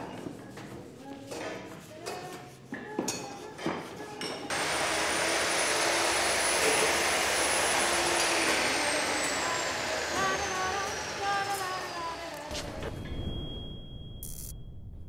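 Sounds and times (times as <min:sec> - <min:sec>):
angle grinder grinding metal: 0:04.5 - 0:12.6.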